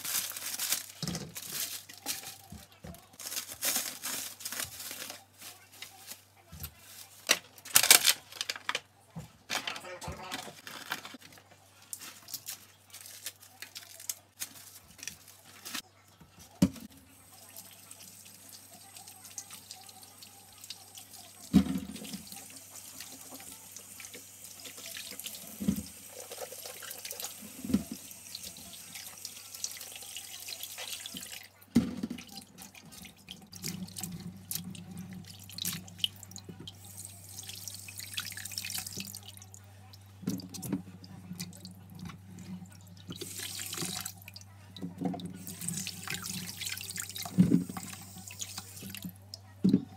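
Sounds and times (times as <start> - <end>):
rustling: 0.0 - 8.8.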